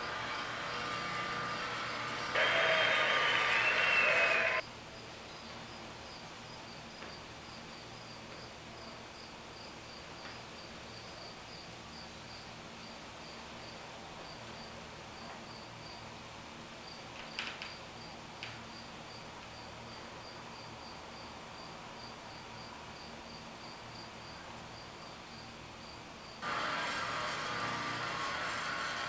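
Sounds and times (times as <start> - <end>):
loud steady tones: 0.0 - 4.6, 26.4 - 29.0.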